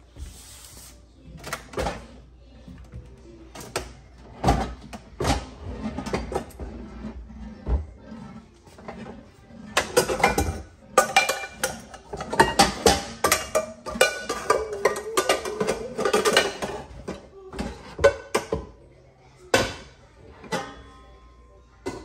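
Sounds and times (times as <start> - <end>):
pots and pans clattering: 3.5 - 18.8.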